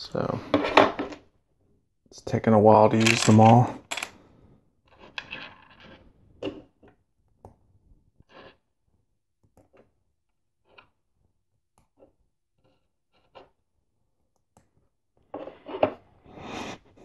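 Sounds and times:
plastic pieces rattling: 2.8s - 4.1s
plastic pieces clicking: 2.9s - 4.1s.

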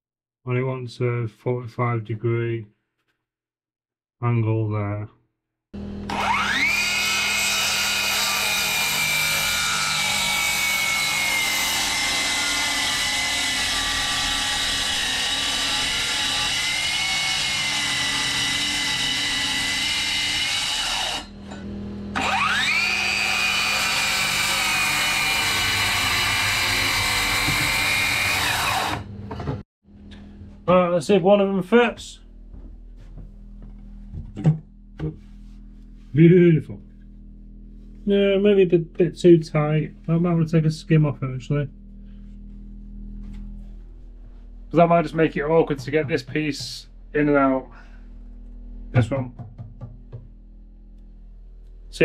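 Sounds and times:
circular saw cutting plywood: 5.8s - 29.4s, 44.7s - 48.0s.

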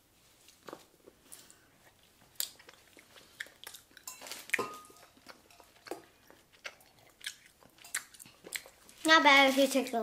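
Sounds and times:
chewing candy: 1.8s - 9.1s.

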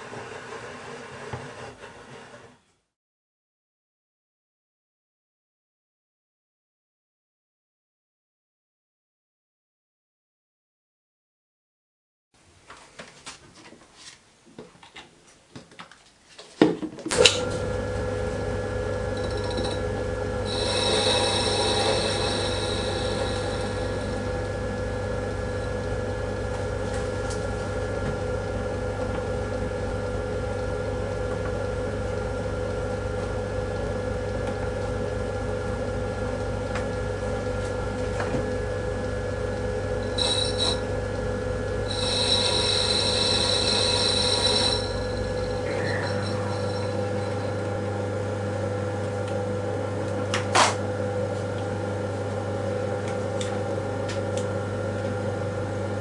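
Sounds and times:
lathe motor hum: 0.0s - 2.5s, 17.3s - 50.4s
hissing cutting noise: 20.4s - 24.9s, 41.8s - 47.6s.

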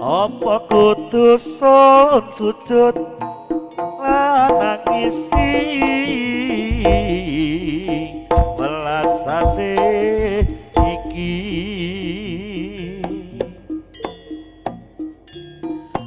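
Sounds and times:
gamelan notes: 0.0s - 16.0s
wobbling melody line: 0.0s - 16.0s
hand drum strokes: 3.0s - 12.2s.

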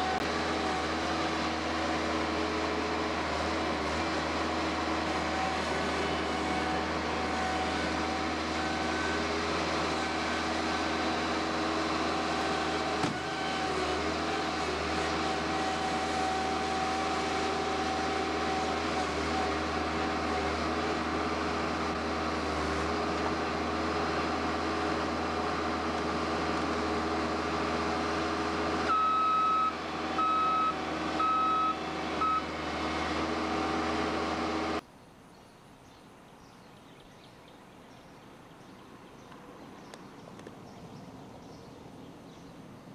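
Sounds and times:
diesel engine running: 0.0s - 34.8s
backup alarm beeps: 28.9s - 32.5s.

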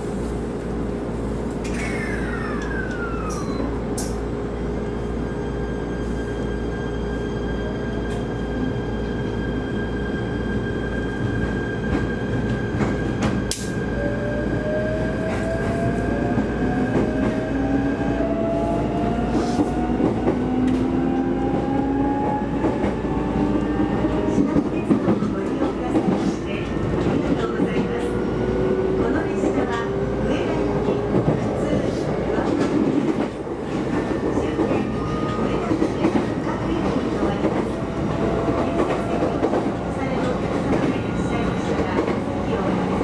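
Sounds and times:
train interior hum: 0.0s - 43.0s
train motors whining: 1.6s - 4.2s.

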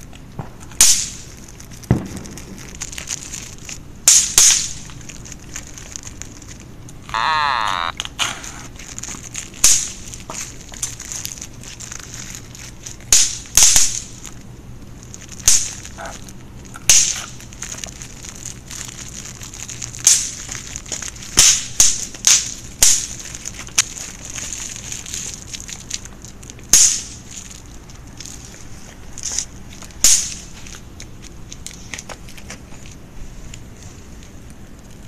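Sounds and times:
plastic wrapper crackling: 1.2s - 3.8s, 4.7s - 30.0s.

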